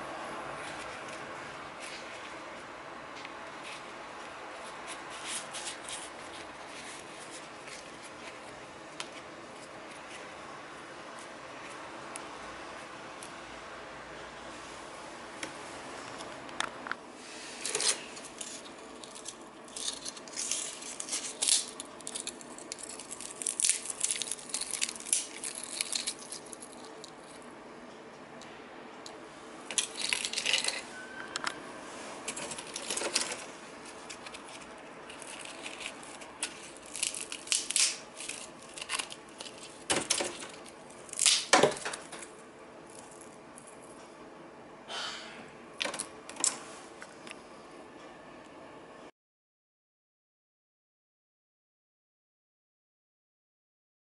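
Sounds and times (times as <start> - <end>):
dry peels crackling and rattling: 0.6 - 10.3, 17.6 - 27.5, 29.6 - 30.8, 32.2 - 43.9.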